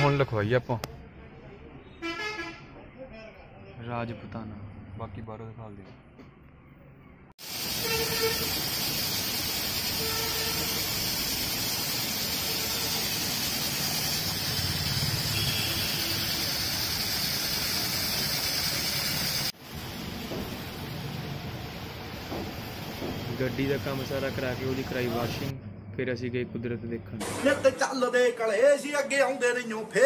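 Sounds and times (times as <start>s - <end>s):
car-wash water spray hiss: 7.4s - 25.5s.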